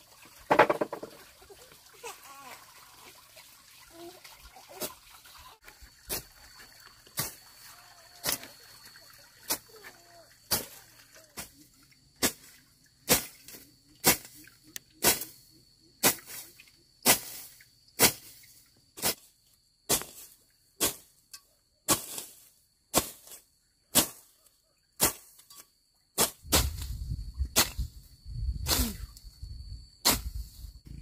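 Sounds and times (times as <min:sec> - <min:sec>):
hoe chopping into soil: 0:30.0 - 0:30.4.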